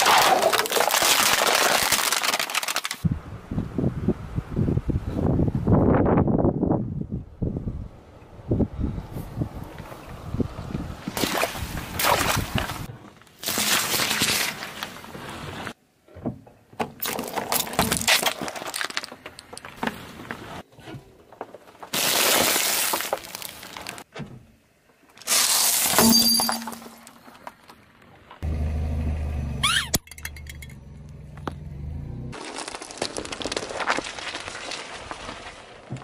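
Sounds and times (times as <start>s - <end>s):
tyre crushing objects: 0.0s - 3.0s.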